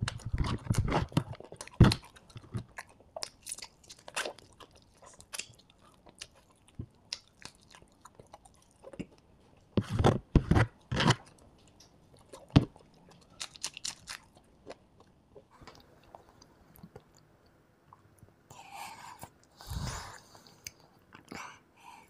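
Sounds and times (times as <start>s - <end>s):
chewing crispy crumbs: 0.0s - 17.3s.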